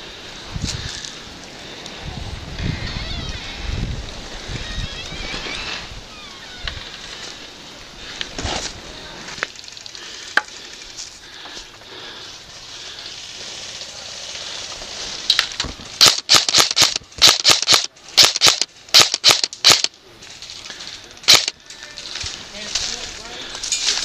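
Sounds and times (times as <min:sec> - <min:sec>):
low outdoor background: 0:00.0 - 0:24.0
airsoft gun firing bursts: 0:16.0 - 0:19.9, 0:21.3 - 0:21.5.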